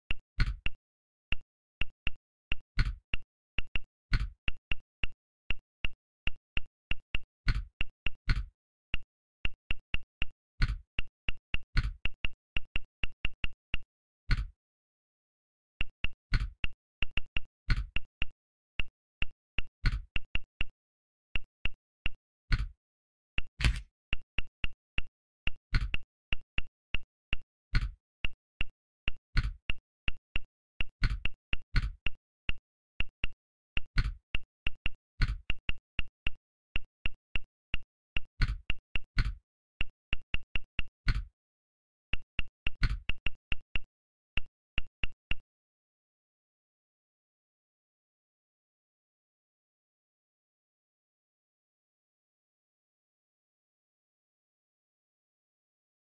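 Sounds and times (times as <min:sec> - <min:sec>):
phone keyboard clicks: 0:23.6 - 0:23.9.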